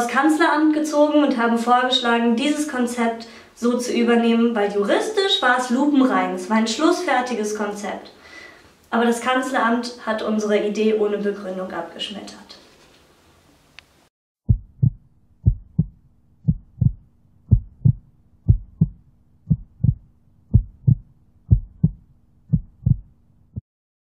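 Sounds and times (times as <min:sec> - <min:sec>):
faint low hum: 0:14.5 - 0:23.6
heartbeat thumps: 0:14.5 - 0:23.6.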